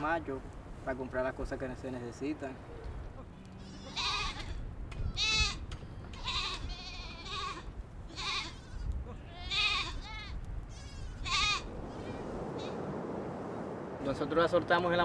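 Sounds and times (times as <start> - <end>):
goats bleating: 3.3 - 12.2.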